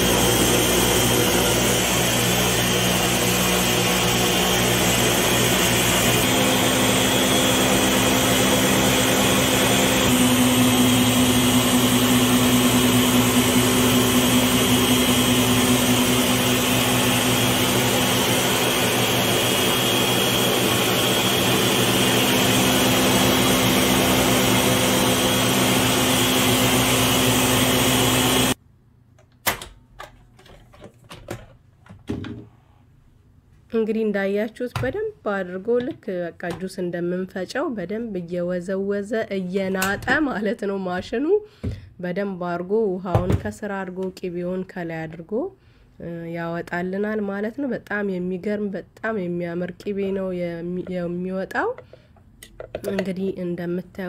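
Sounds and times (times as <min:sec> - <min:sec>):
blender running: 0:00.0 - 0:28.6.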